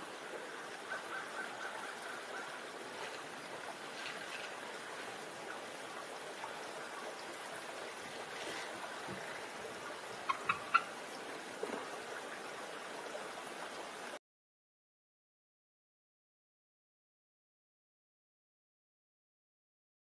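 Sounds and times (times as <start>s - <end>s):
outdoor background hiss: 0.0s - 14.2s
bird chirps: 10.3s - 10.8s.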